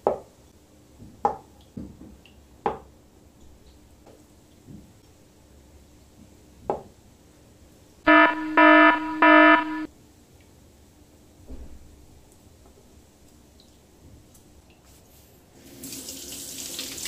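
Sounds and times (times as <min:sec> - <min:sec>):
harsh alarm buzzer beeps: 0:08.1 - 0:09.9.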